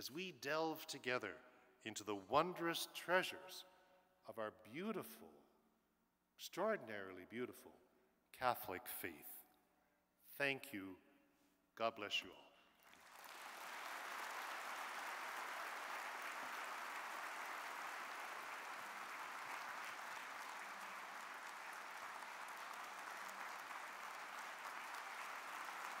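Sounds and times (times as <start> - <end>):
large audience applauding: 12.8 - 26.0.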